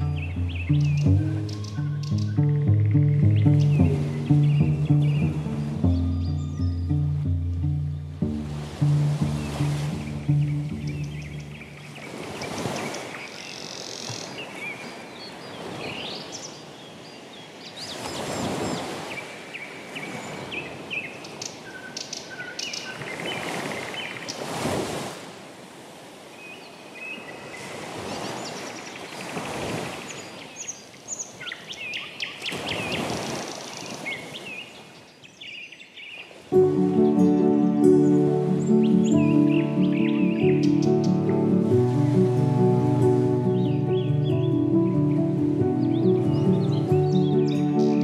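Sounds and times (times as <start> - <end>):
birds chirping: 0.0 - 16.5, 36.6 - 48.0.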